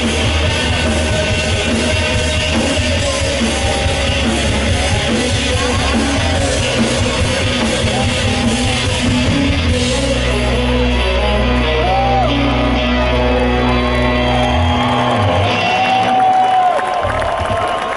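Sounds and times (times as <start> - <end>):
live rock band: 0.0 - 17.9
woman singing: 0.5 - 12.6.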